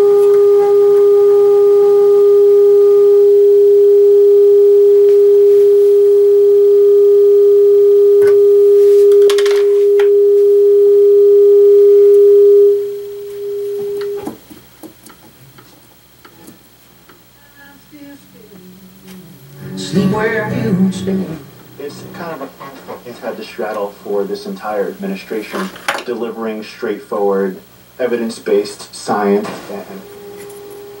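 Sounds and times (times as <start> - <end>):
steady test tone: 17.3 - 24.4.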